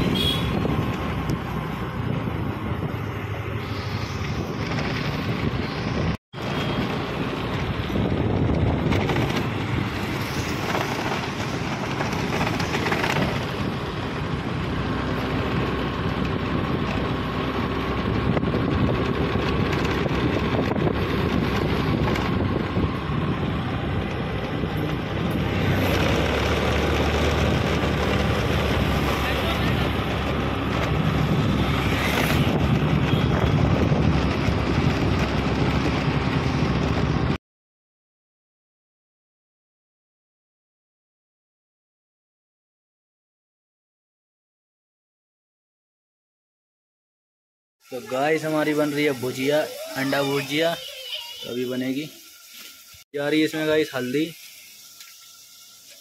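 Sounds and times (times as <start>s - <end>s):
wind buffeting microphone: 0.0s - 6.2s, 7.5s - 14.9s, 17.7s - 37.4s
passing road traffic: 0.0s - 37.4s, 47.8s - 56.0s
engine humming: 6.4s - 37.4s.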